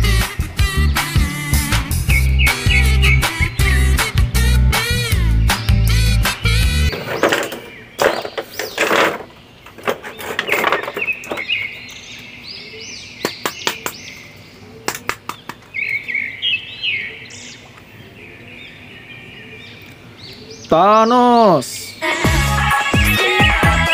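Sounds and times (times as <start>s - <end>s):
funk music: 0.0s - 6.9s, 22.1s - 23.9s
birds chirping: 0.0s - 23.9s.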